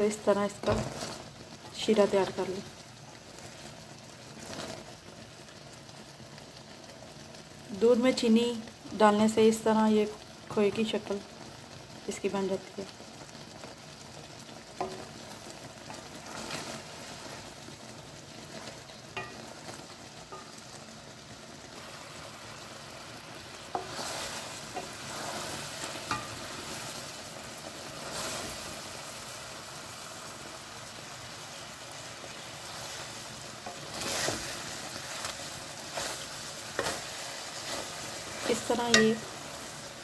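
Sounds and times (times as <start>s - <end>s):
syrup sizzling and bubbling: 0.0s - 40.0s
wooden spoon scraping pan: 0.6s - 1.3s, 23.7s - 26.8s, 32.7s - 39.7s.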